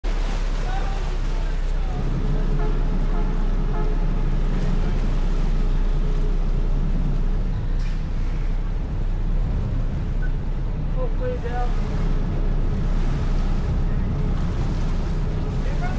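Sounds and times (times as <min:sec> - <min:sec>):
ferry engines rumbling: 0:00.0 - 0:15.9
mid-pitched hum: 0:00.2 - 0:15.9.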